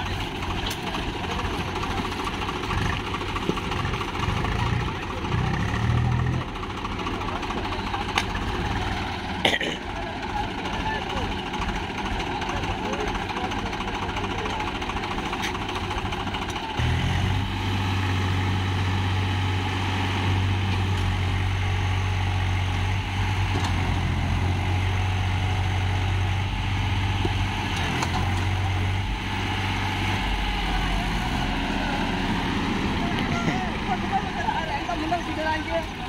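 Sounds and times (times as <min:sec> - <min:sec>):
tractor diesel engines under load: 0:00.0 - 0:36.0.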